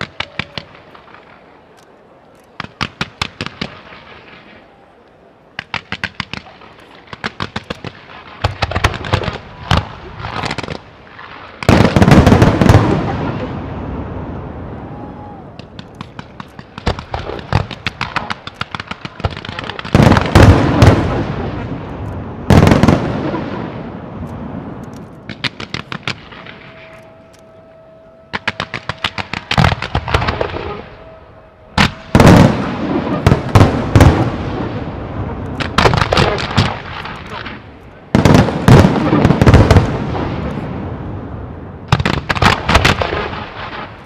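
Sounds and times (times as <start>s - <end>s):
firework shells booming: 5.6s - 14.2s, 15.5s - 27.0s, 28.3s - 31.0s, 31.7s - 44.0s
sharp firework pops: 24.3s - 26.5s.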